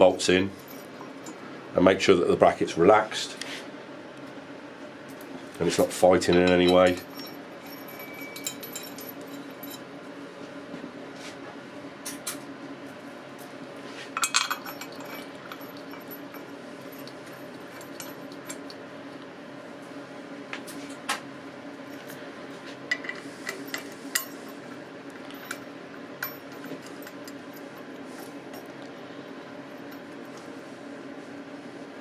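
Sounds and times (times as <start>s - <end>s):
steady low hum: 0.0s - 32.0s
metal clinks of bolts: 6.4s - 9.8s.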